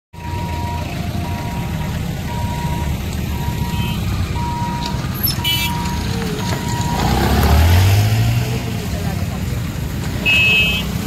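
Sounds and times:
barrier warning hooter beeping: 0.2 - 7.4
motorcycle engines idling: 0.2 - 7.5.

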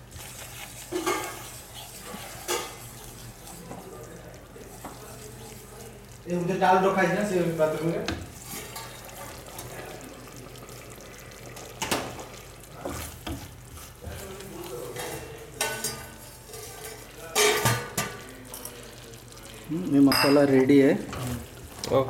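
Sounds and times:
spatula scraping paste in pan: 0.0 - 3.8.

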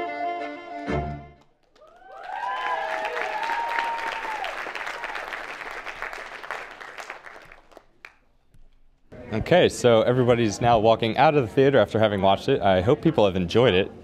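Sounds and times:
audience applauding: 1.4 - 8.3
people whooping: 1.8 - 6.2.

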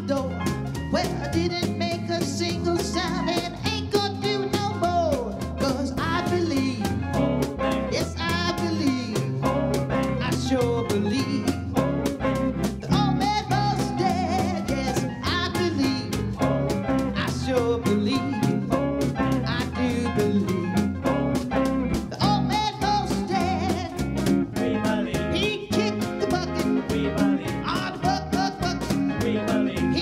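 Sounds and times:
electric guitar plucked notes: 6.6 - 30.0.

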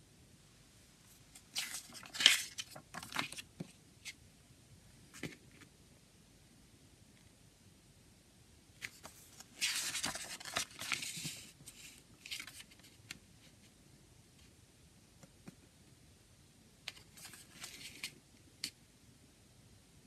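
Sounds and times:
paper booklet rustling: 1.3 - 4.2, 8.8 - 13.7, 16.9 - 18.2.

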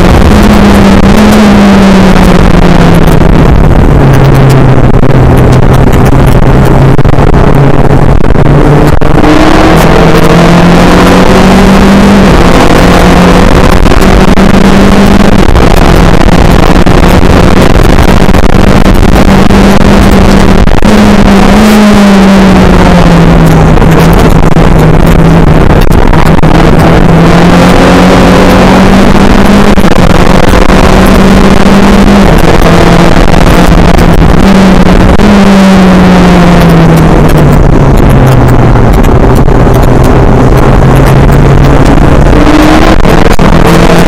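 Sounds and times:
race car engine running hard: 0.0 - 44.0
wind and tyre noise: 0.0 - 44.0.

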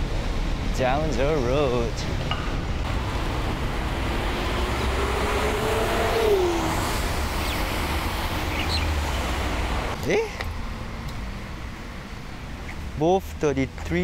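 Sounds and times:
road traffic passing: 0.0 - 14.0
passing vehicle hum: 2.3 - 13.0.

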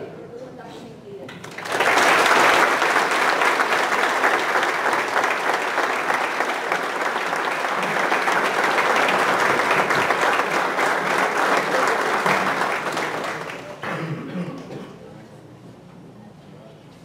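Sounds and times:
audience applauding: 1.4 - 14.0.

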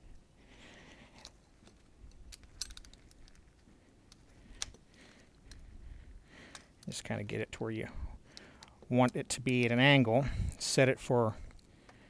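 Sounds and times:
metallic clicks of hand tools: 1.2 - 3.4.

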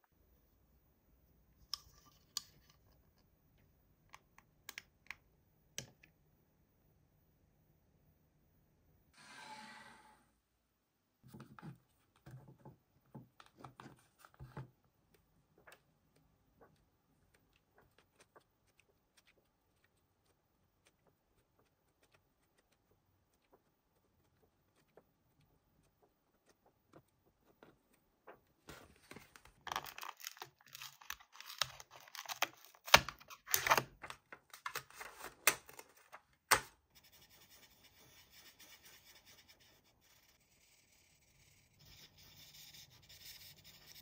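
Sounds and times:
marker scratching on paper: 37.0 - 44.0.

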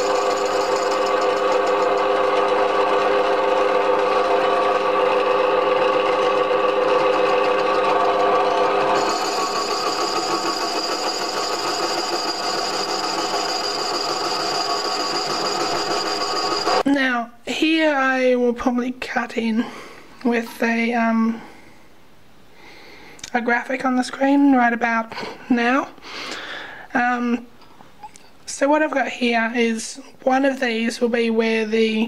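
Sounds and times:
metal lathe whine: 0.0 - 16.8.

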